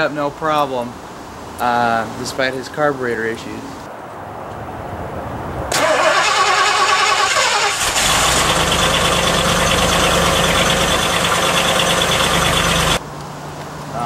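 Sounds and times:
starter motor cranking: 0:05.7 - 0:13.0
engine idling: 0:05.8 - 0:13.0.

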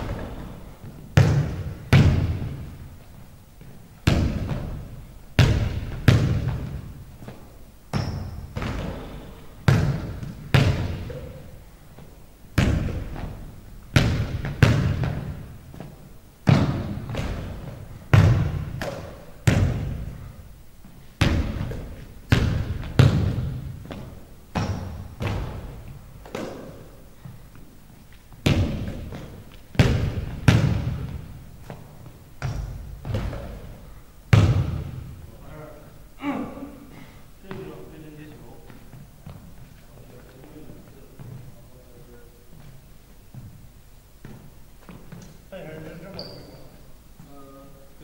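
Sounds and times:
basketball bouncing on hardwood floor: 0:00.0 - 0:02.7, 0:04.0 - 0:11.3, 0:12.6 - 0:20.1, 0:21.2 - 0:27.4, 0:28.4 - 0:33.7, 0:34.3 - 0:35.1.

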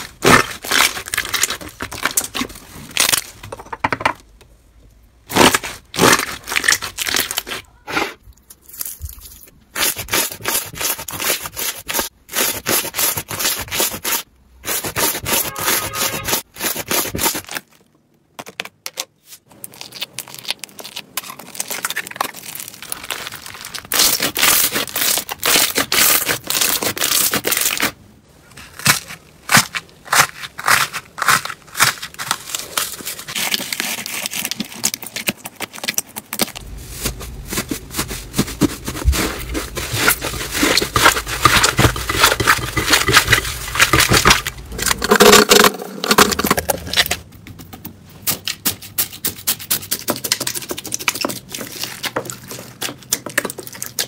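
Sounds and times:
squishy scraping: 0:00.0 - 0:03.4, 0:05.3 - 0:17.8, 0:19.2 - 0:47.3.

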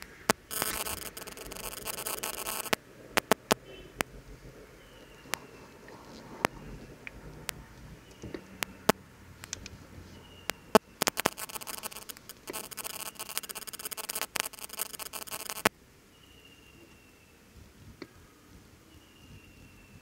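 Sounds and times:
plastic crinkling: 0:00.0 - 0:03.6, 0:10.6 - 0:15.7.

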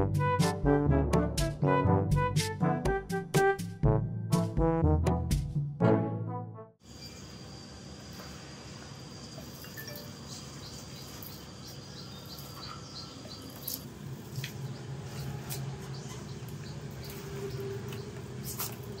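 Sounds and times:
thin high chirping: 0:09.3 - 0:19.0.

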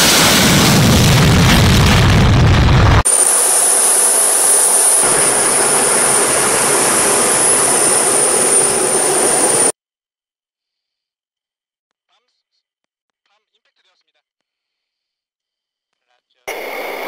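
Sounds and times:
fighter jet engine roaring: 0:00.0 - 0:09.7, 0:16.5 - 0:17.0
jet noise with high whine: 0:00.0 - 0:09.7, 0:16.5 - 0:17.0.

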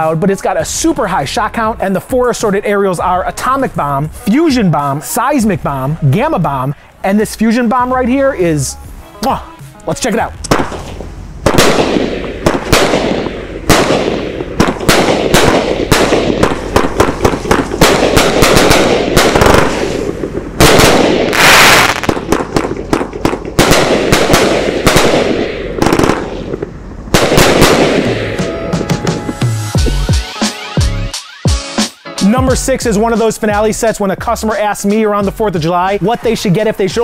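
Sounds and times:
fireworks booming: 0:10.3 - 0:30.0.

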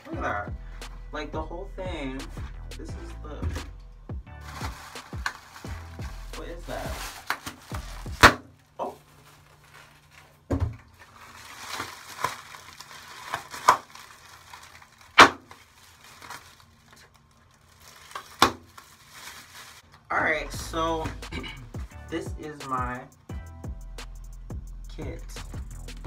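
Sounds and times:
plastic packaging crinkling: 0:04.4 - 0:20.1.

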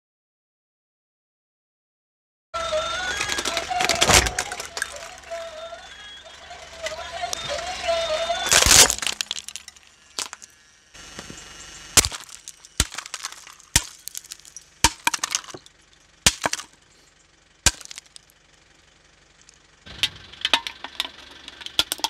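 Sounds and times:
plastic shell crunching: 0:02.9 - 0:05.4, 0:08.4 - 0:10.5, 0:12.0 - 0:15.7, 0:16.3 - 0:16.8, 0:17.7 - 0:18.3, 0:20.0 - 0:22.0
plastic cracking and snapping: 0:03.1 - 0:05.2, 0:08.4 - 0:10.5, 0:12.0 - 0:15.6, 0:17.7 - 0:18.2.

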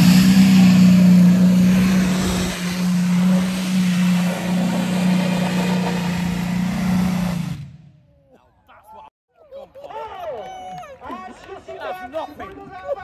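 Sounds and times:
tractor engine running flat out: 0:00.0 - 0:07.8.

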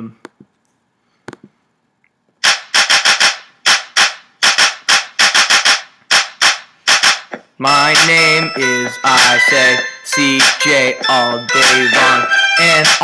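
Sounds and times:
hip-hop drum beat: 0:02.4 - 0:13.0.

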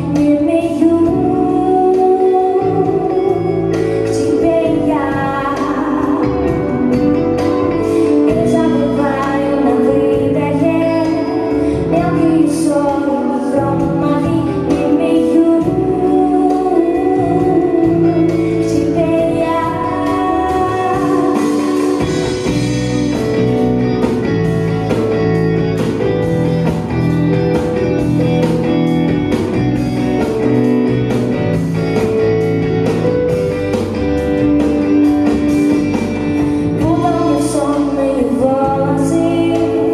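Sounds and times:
woman singing: 0:00.0 - 0:22.7, 0:36.4 - 0:39.9
live band playing: 0:00.0 - 0:39.9.

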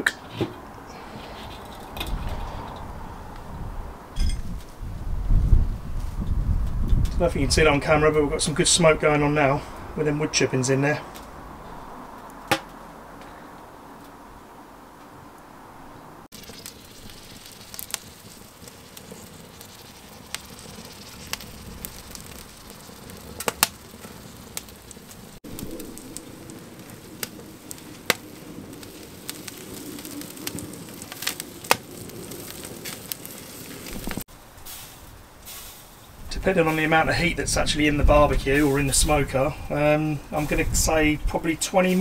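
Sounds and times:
steady hiss: 0:16.3 - 0:42.0
wood chips crackling and popping: 0:16.3 - 0:42.0.

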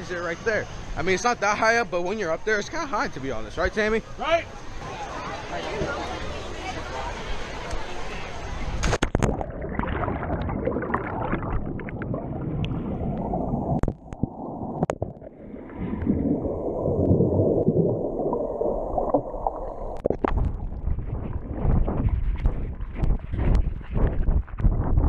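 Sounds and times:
muffled underwater gurgling: 0:09.2 - 0:25.0.

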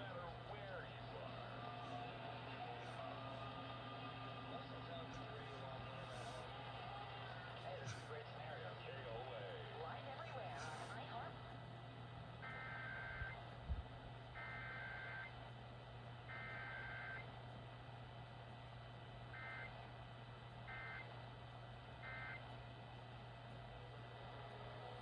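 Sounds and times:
alert data tone bursts: 0:12.4 - 0:13.4, 0:14.4 - 0:15.3, 0:16.3 - 0:17.3, 0:22.0 - 0:22.4.

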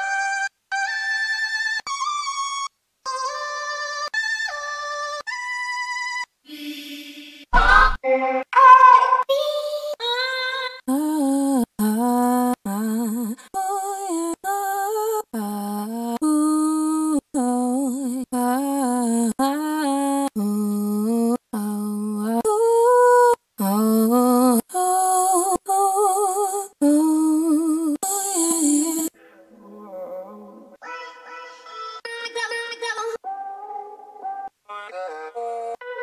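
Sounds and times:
sung vocal chop samples: 0:07.5 - 0:09.6, 0:23.6 - 0:29.2.

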